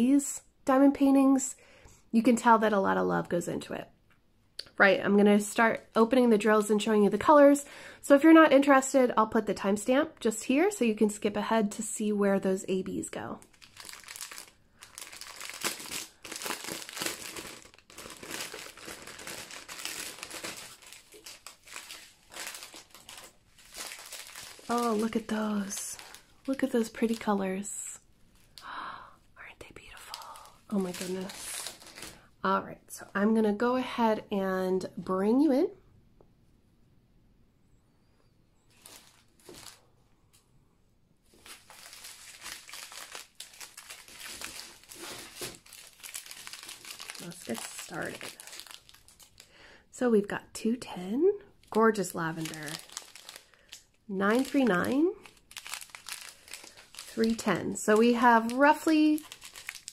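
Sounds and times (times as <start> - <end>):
plastic wrapping crinkling: 13.2 - 27.7, 29.7 - 32.3, 38.7 - 39.9, 41.3 - 49.8, 51.6 - 59.9.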